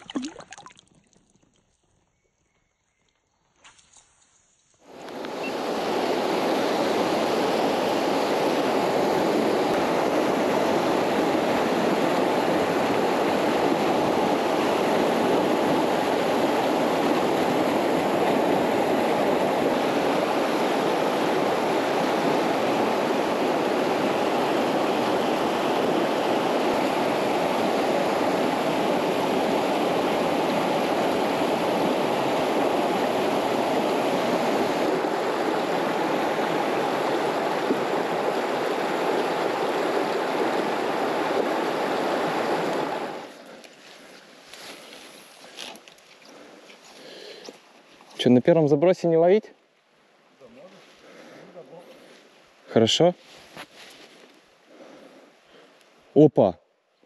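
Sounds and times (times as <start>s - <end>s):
river water rushing over rocks: 0.0s - 0.7s, 4.9s - 46.5s.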